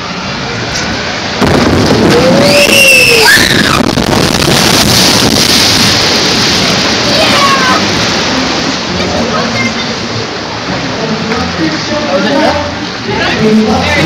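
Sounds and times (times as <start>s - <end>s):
water rushing and splashing: 0.0s - 14.0s.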